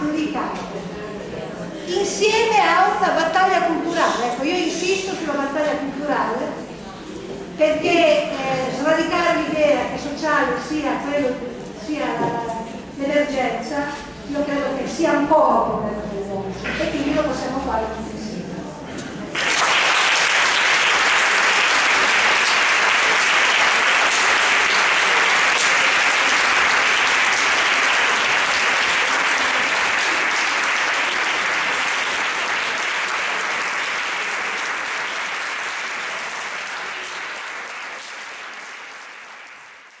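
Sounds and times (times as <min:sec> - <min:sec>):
large audience applauding: 0:19.3 - 0:40.0.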